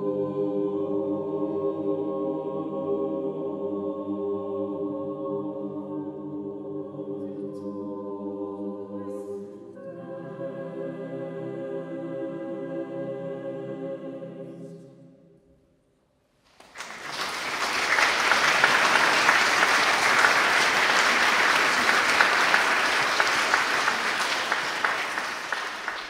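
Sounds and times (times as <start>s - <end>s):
mixed choir holding chord: 0.0s - 15.3s, 16.8s - 26.0s
audience applauding: 16.6s - 26.0s.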